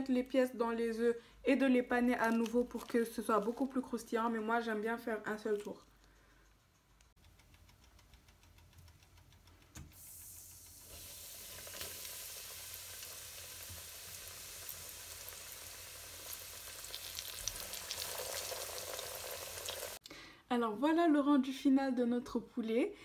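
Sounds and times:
chicken deep-frying in oil: 9.9 - 20.0.

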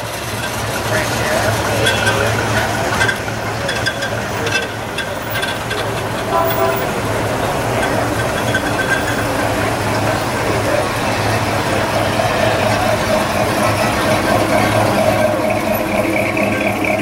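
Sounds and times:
car engines idling: 0.0 - 17.0.

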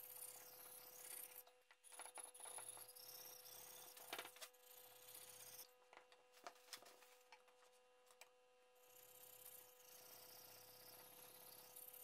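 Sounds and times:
blade scraping on whetstone: 9.0 - 12.0.

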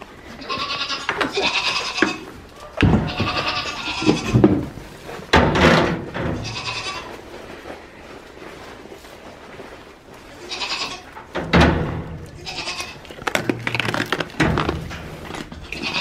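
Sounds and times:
young goats bleating: 0.3 - 4.7, 6.3 - 7.2, 10.3 - 11.2, 12.4 - 13.2, 15.5 - 16.0
rustling and bumps: 2.0 - 16.0.

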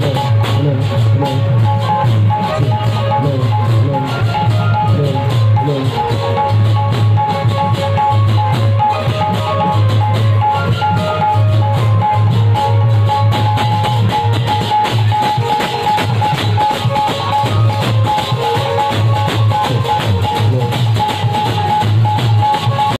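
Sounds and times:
drummers playing fast rhythms: 0.0 - 22.9.

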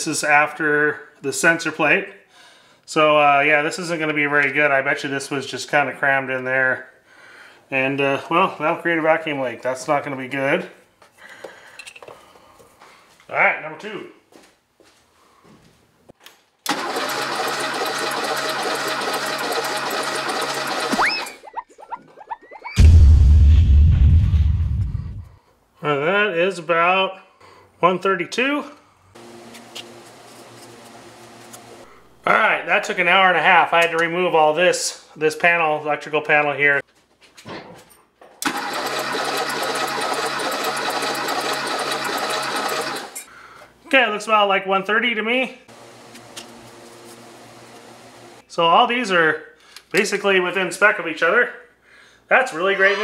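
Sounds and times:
engine cranking on starter: 16.6 - 21.4, 38.4 - 43.3.

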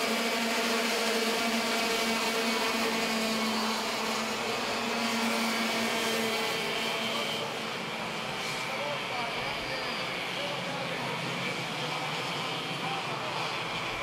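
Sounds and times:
racing kart engine at high revs: 0.0 - 14.0.

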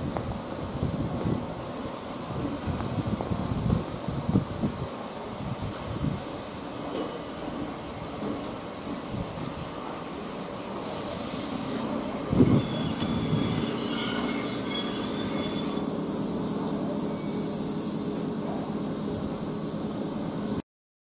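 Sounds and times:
electric train rumbling over track: 0.0 - 20.6
steel wheel squeal: 11.0 - 16.0, 17.1 - 17.5.

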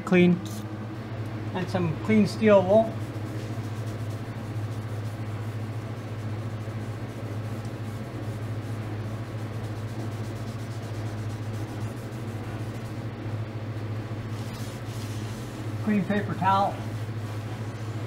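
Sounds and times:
steady low hum: 0.0 - 18.0
steel wool scrubbing metal: 2.4 - 13.0.

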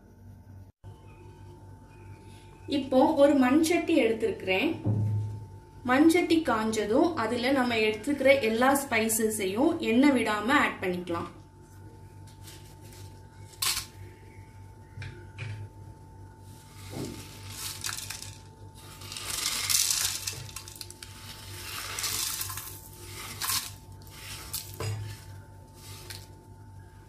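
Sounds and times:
spices rattling onto clay: 16.6 - 26.4.

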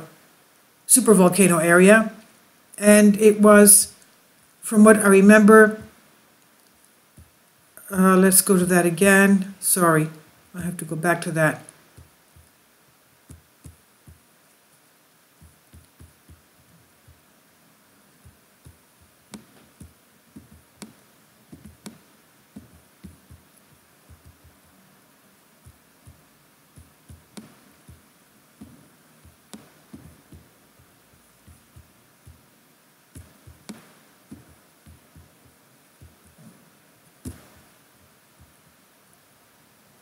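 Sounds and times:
soft thumps: 18.2 - 23.5, 26.8 - 28.0, 28.6 - 32.5, 33.1 - 36.6, 37.2 - 38.6.

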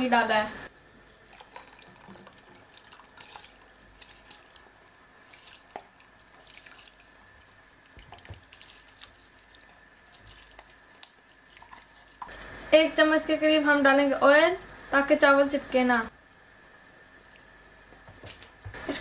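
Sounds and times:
water splashing and dripping: 1.3 - 12.4.

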